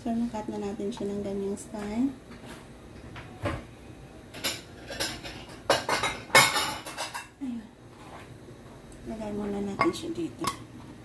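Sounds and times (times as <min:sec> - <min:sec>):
utensils and dishes clinking: 0:04.3 - 0:07.4.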